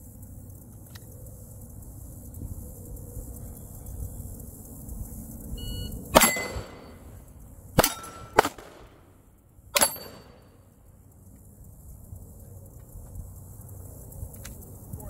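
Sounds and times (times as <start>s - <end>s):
faint short beep: 5.6s - 6.0s
pistol shots: 6.1s - 7.0s, 7.8s - 9.1s, 9.8s - 10.5s
steel targets ringing: 6.1s - 7.1s, 7.8s - 8.6s, 9.8s - 10.6s.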